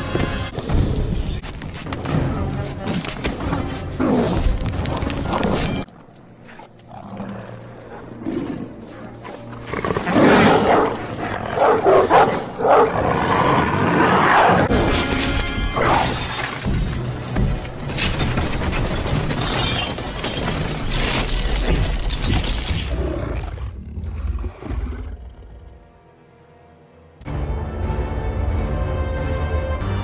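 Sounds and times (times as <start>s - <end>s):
dramatic film music: 0.0s - 13.3s, 14.6s - 23.6s, 24.6s - 30.0s
monstrous dog snarling and growling: 6.5s - 14.7s.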